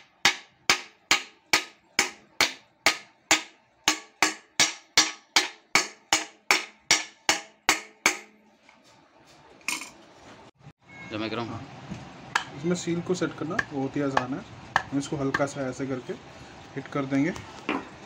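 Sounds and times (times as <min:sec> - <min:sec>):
hammer knocking on metal: 0:12.3 - 0:12.6, 0:13.4 - 0:15.6.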